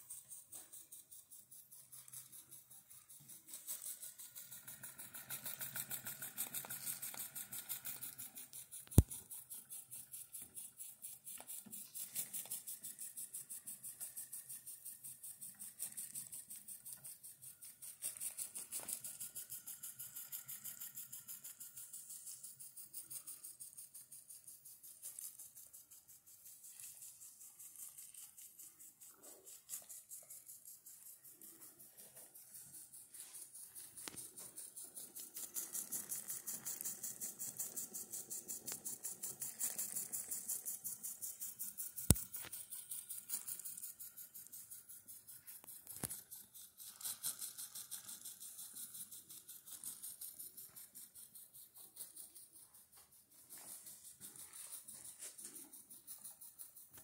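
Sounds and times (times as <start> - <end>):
model steam engine running: 0.0 - 57.0
sharp click: 42.1 - 42.5.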